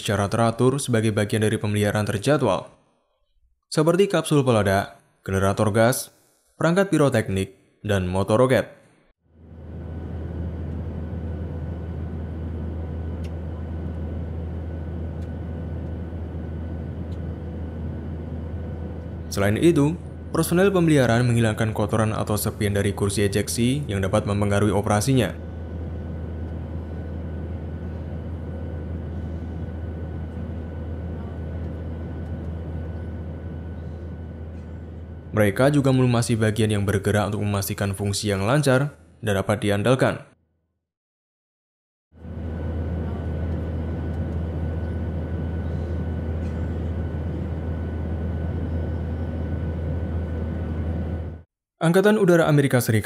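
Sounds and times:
low machine hum: 0:09.3 - 0:38.6, 0:42.2 - 0:51.5.

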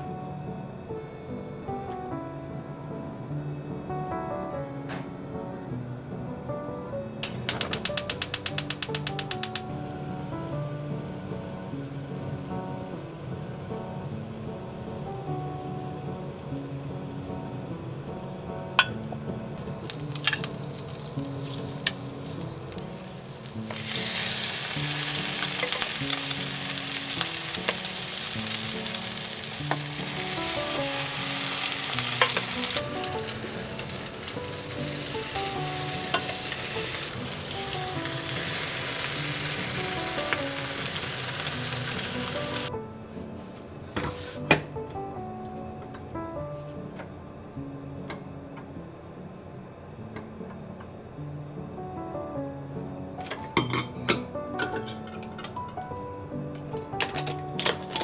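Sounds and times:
soft background music: 0:00.0 - 0:58.0
bread sizzling in butter: 0:07.5 - 0:10.2, 0:19.6 - 0:42.7.

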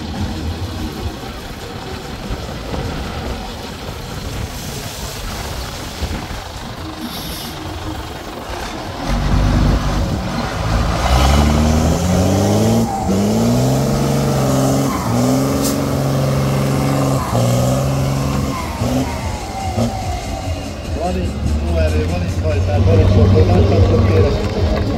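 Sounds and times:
truck engine revving under load: 0:06.8 - 0:24.9.

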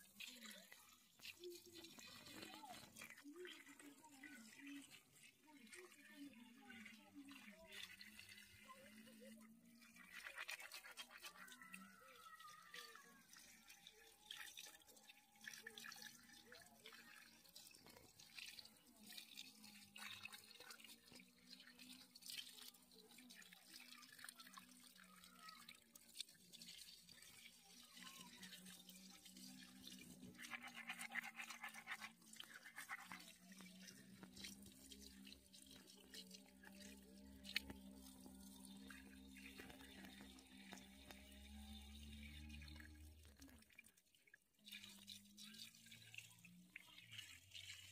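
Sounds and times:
water splashing and dripping: 0:00.0 - 0:47.9
rubbing wet roots: 0:29.5 - 0:36.7.

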